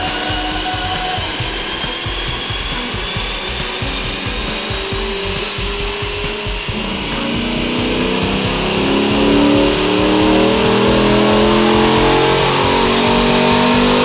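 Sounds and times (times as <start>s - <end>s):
car engine revving under load: 0.0s - 14.0s
thin high whine: 0.0s - 14.0s.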